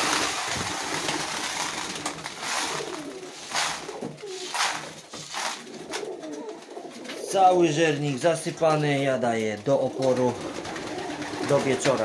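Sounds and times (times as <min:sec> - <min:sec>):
grain pouring into feeder: 0:00.0 - 0:05.7
pigeons cooing: 0:00.0 - 0:08.3, 0:09.8 - 0:12.0.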